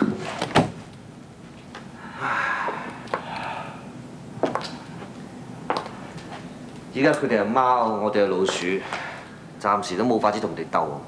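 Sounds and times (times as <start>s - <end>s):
long breathy exhale: 2.0s - 3.9s.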